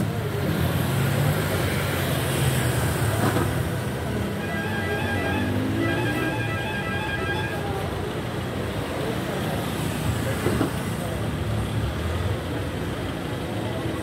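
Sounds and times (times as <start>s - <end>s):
traffic noise: 0.0s - 14.0s
vehicle engines rumbling: 0.0s - 14.0s
voices: 2.9s - 14.0s.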